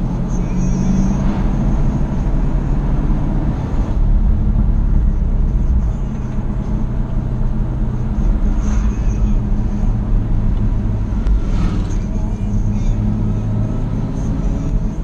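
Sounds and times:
car engine at steady revs: 0.0 - 15.0
tyre and road noise: 0.0 - 15.0.

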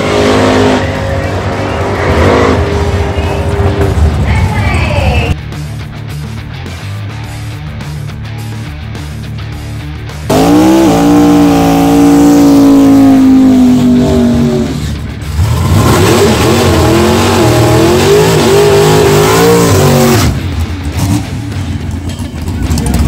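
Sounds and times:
car engine revving in a burnout: 0.0 - 4.3, 10.3 - 21.5.

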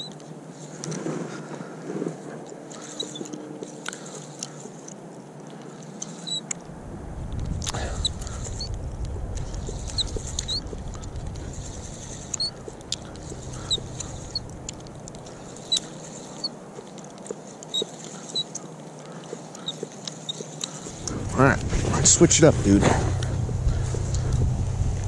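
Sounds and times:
small birds chirping: 2.5 - 6.7, 7.4 - 24.7
wind rumble on microphone: 6.5 - 15.6, 20.8 - 25.0.

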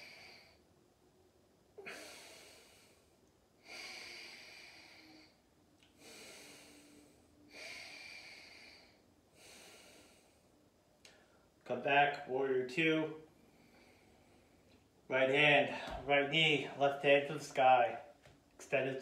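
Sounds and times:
person breathing slowly: 0.0 - 0.7, 1.8 - 11.5, 13.4 - 14.8.

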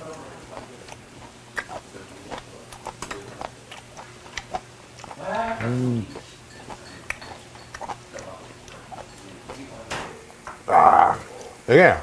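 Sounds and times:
man chewing: 0.0 - 11.6
man humming mmm: 5.6 - 6.3, 10.7 - 11.3.

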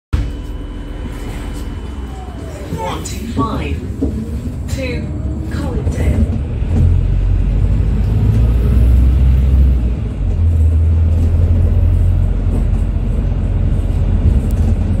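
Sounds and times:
bus drivetrain and road drone: 0.1 - 15.0.

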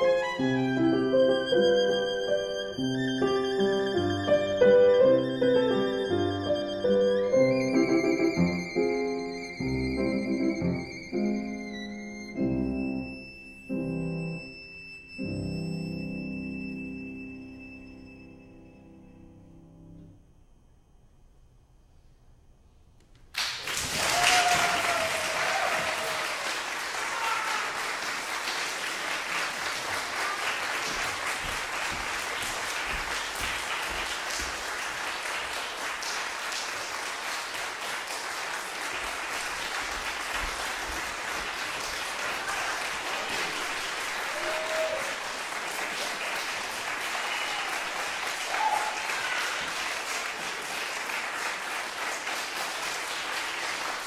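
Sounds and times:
audience applauding: 23.3 - 54.0.

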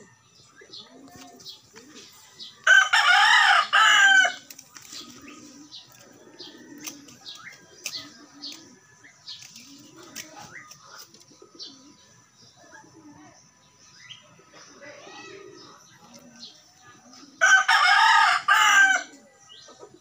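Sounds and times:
rooster crowing: 2.6 - 4.4, 17.4 - 19.1.

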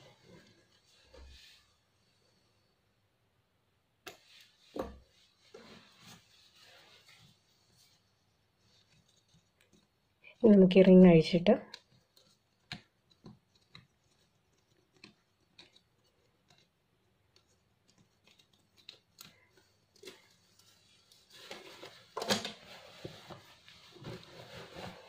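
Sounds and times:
cloth rustling: 0.0 - 2.4, 4.2 - 10.2, 11.9 - 25.0
small clicks of hoop screw: 11.7 - 16.7.

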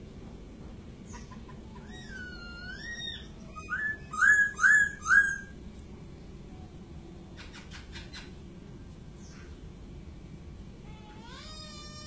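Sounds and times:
bird whistling song: 1.1 - 5.6.

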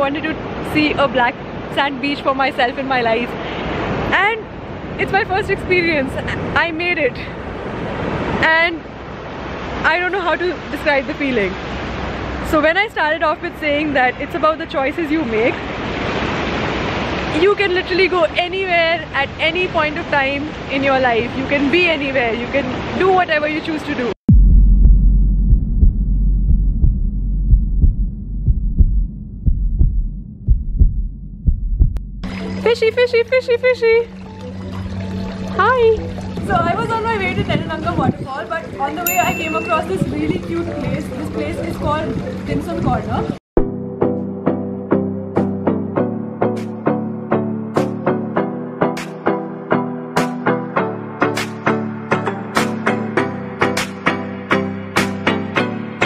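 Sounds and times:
wind buffeting microphone: 34.9 - 43.4
background music with steady beat: 43.7 - 56.0.

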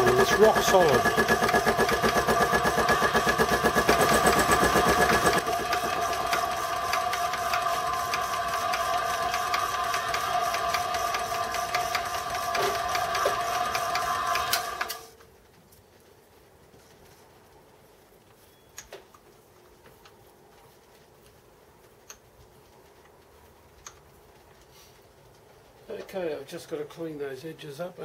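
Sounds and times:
milling machine cutting: 0.0 - 15.1.

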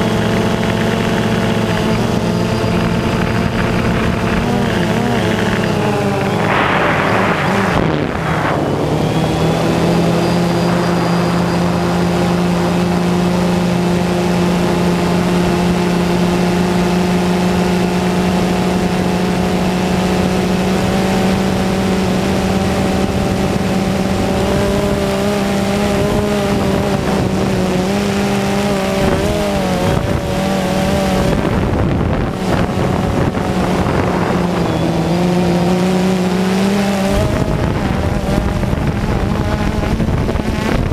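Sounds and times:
drone propellers whining: 0.0 - 40.9.

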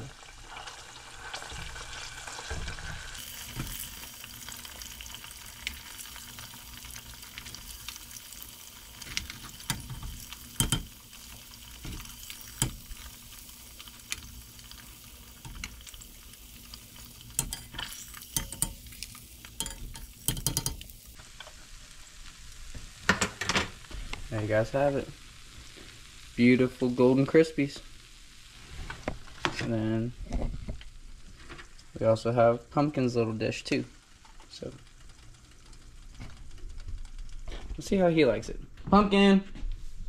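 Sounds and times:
fish sizzling in hot oil: 0.0 - 37.5
metal tongs lifting food: 8.3 - 21.1.

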